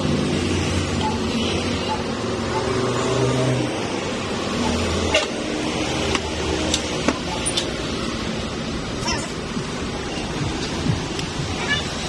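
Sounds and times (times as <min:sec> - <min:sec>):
steady background rumble: 0:08.2 - 0:12.0.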